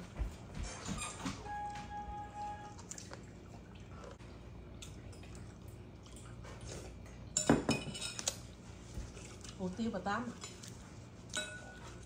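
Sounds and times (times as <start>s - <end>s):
utensils clinking against bowl: 7.3s - 8.5s, 10.2s - 12.0s.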